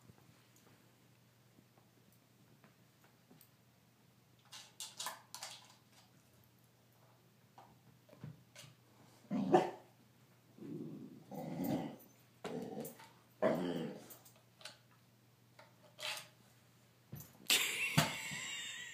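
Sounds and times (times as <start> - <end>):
dog growling: 10.6 - 14.2.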